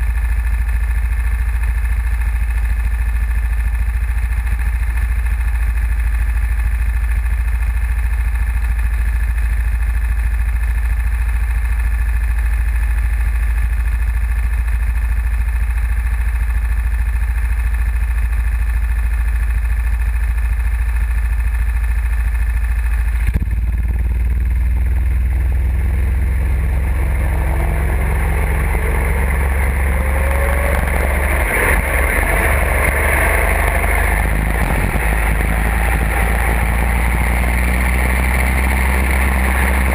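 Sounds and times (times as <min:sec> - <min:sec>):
go-kart engines idling: 0:00.0 - 0:39.9
go-kart engines revving: 0:25.4 - 0:39.9.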